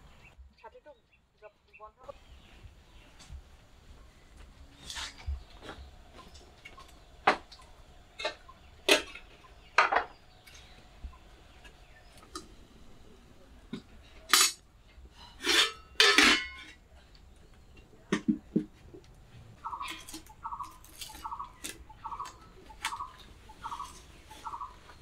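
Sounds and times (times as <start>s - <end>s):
metal pots clinking and clanking: 8.2s - 10.2s, 13.7s - 16.8s.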